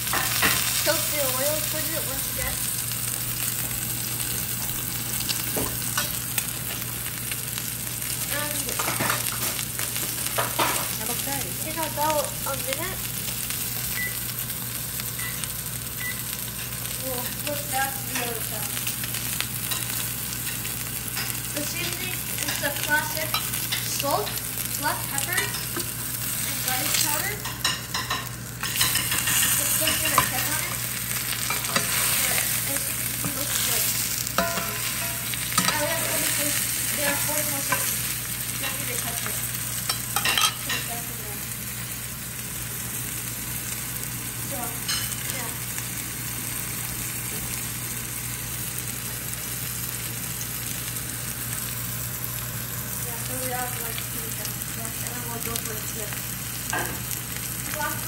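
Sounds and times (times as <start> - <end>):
oil crackling and popping: 0.0 - 27.5
fish sizzling in oil: 0.0 - 58.0.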